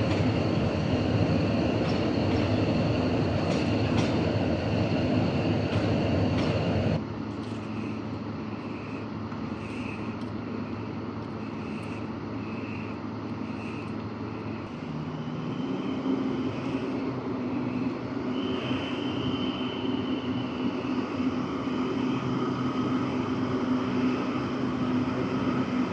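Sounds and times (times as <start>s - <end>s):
locomotive engine running: 0.0s - 25.9s
passing train: 0.0s - 25.9s.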